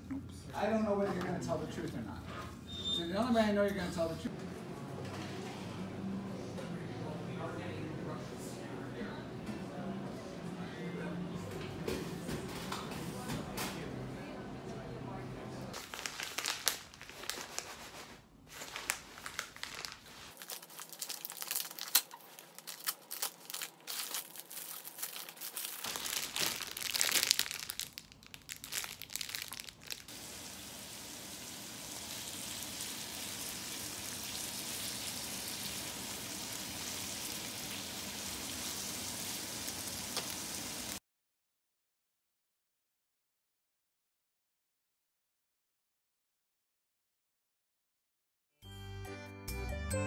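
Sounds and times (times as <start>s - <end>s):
plastic packaging crinkling: 15.8s - 30.1s.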